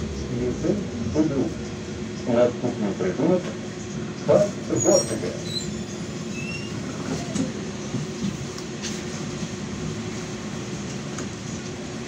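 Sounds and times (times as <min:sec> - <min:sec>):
tram running hum: 0:00.0 - 0:12.0
tram wheel squeaks: 0:04.7 - 0:07.5.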